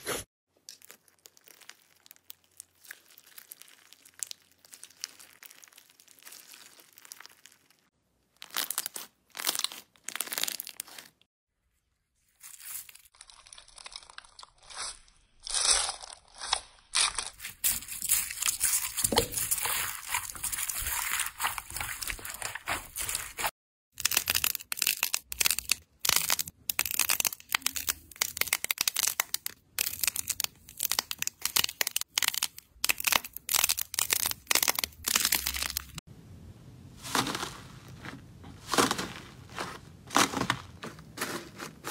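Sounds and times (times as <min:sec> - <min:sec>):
crunchy slime crackling and popping: 0:00.7 - 0:11.2, 0:12.5 - 0:36.0, 0:37.0 - 0:41.9.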